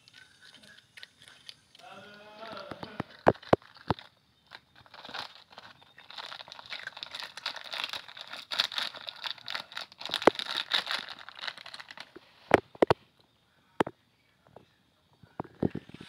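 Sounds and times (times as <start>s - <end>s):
plastic packet crinkling: 0.0s - 12.7s.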